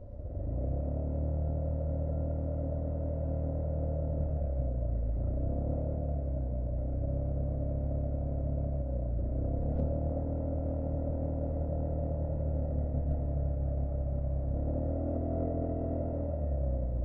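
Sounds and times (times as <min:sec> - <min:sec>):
motorcycle engine rumble: 0:06.5 - 0:17.0.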